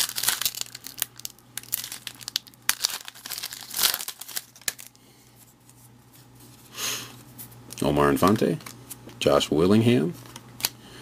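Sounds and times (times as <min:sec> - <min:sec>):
wrapper crinkling and tearing: 0:00.0 - 0:04.9.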